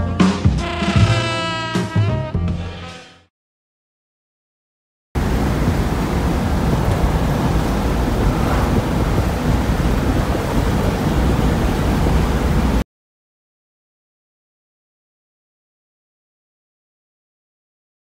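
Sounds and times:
car road and engine noise: 5.2s - 12.8s
wind buffeting microphone: 5.2s - 12.8s.

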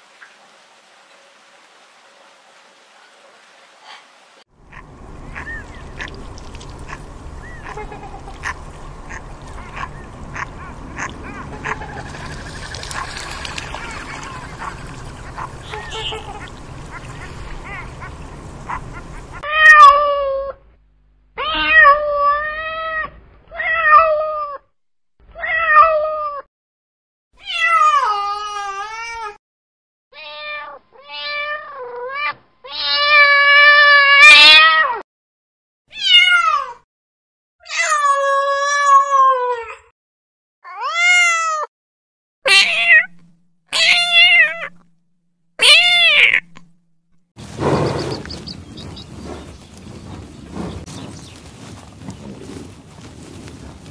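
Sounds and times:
faint outdoor background noise: 0.0s - 20.4s
cats meowing: 36.0s - 36.8s, 42.5s - 44.8s, 45.6s - 46.6s.

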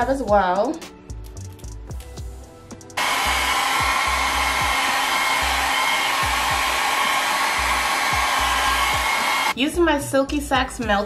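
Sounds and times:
hair dryer running: 3.0s - 9.6s.

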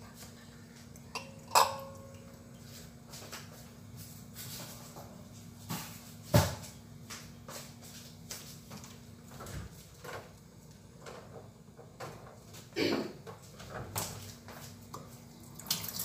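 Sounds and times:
metal cookware clattering: 1.1s - 2.3s.

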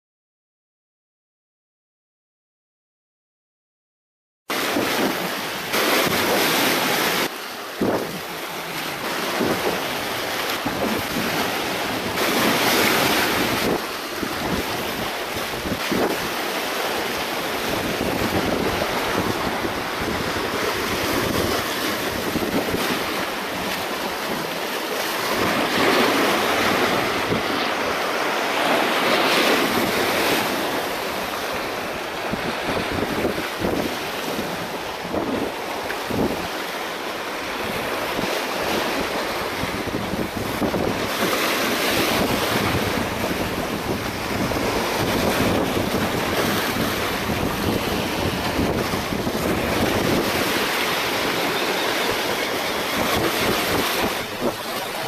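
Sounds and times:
waves splashing on rocks: 4.5s - 55.0s
wind buffeting microphone: 4.6s - 36.8s, 37.4s - 55.0s.

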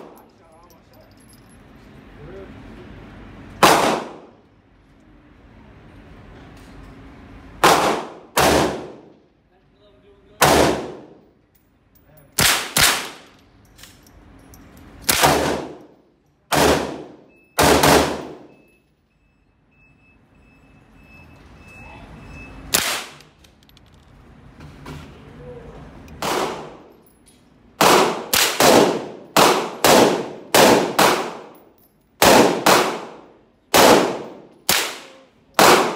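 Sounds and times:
rifle shots echoing indoors: 3.6s - 4.4s, 7.6s - 9.2s, 10.4s - 11.2s, 12.4s - 13.4s, 15.0s - 15.9s, 16.5s - 18.6s, 22.7s - 23.2s, 26.2s - 26.9s, 27.8s - 35.9s.

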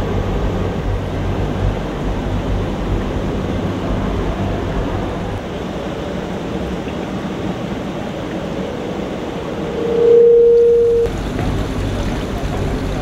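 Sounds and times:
sustained mid-pitched tone: 9.2s - 11.1s
indoor pool hall hiss: 11.1s - 13.0s.

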